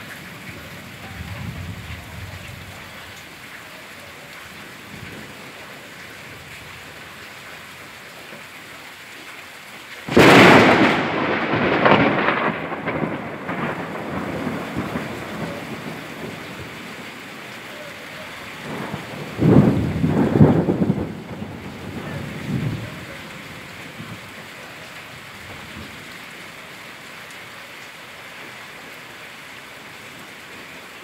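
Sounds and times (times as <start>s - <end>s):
steady rain falling: 0.0s - 31.0s
close thunderclap rumbling: 0.3s - 3.2s, 10.1s - 26.1s.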